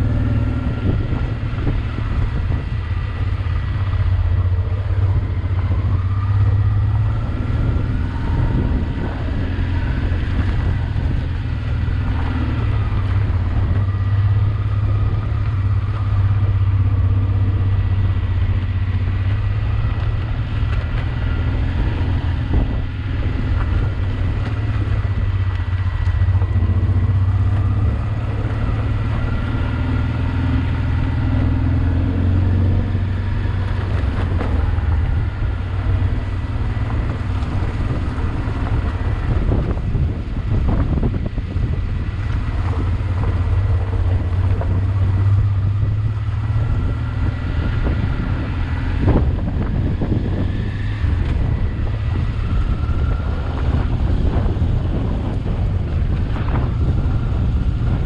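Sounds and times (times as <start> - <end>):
motorcycle engine running: 0.0 - 58.0.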